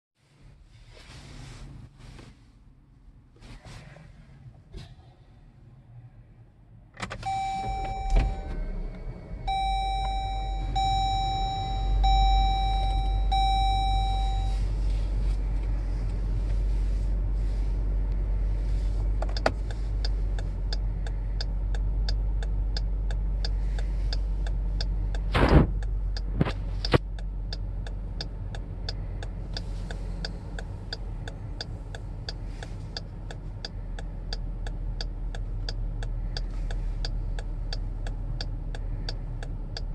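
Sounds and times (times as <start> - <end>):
car engine idling: 4.4 - 39.9
dashboard chime: 9.5 - 14.6
turn signal relay ticking: 9.5 - 14.8, 19.0 - 39.9.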